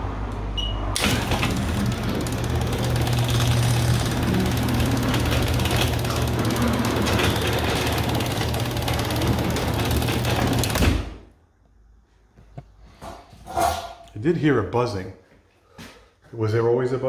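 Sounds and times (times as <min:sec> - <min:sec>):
garage door opener motor buzz: 0:01.0 - 0:11.2.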